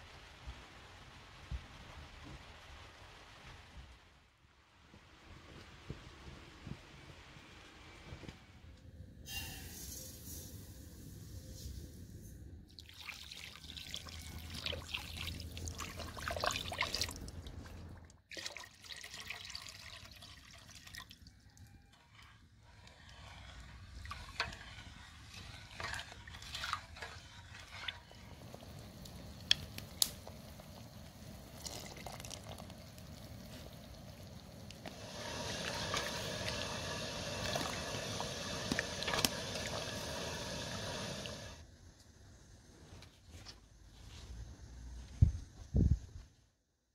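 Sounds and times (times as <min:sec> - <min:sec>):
liquid swishing and sloshing: 0:12.7 - 0:41.4
sugar pouring into metal pot: 0:22.0 - 0:33.7, 0:34.9 - 0:41.4.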